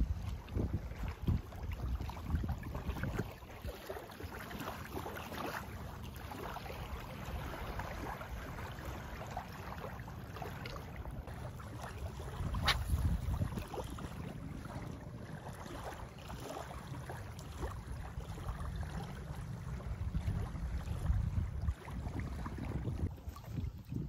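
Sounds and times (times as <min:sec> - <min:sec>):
wind buffeting microphone: 0:00.0 - 0:03.7, 0:11.0 - 0:24.0
small waves lapping: 0:00.0 - 0:24.0.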